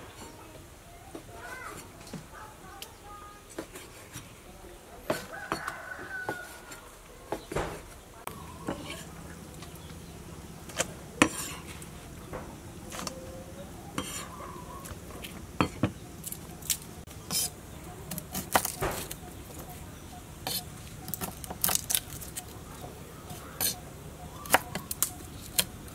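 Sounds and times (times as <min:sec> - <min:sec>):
knife chopping on wooden board: 0:05.1 - 0:06.5, 0:24.4 - 0:25.7.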